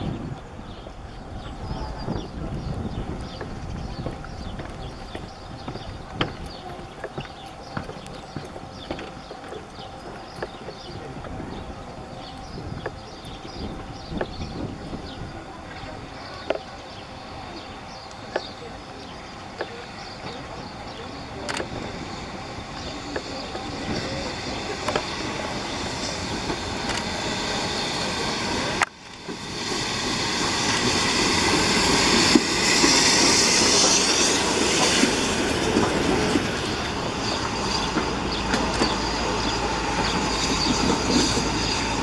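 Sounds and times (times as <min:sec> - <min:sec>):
steam locomotive passing: 0:00.0 - 0:42.0
wheel and rail noise: 0:00.0 - 0:42.0
hissing rush: 0:11.4 - 0:42.0.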